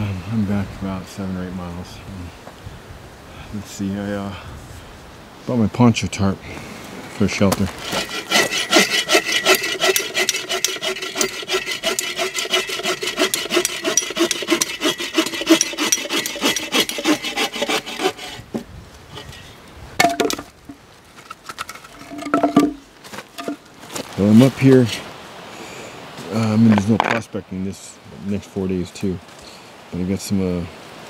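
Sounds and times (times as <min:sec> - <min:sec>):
hand saw cutting branch: 0:07.5 - 0:19.5.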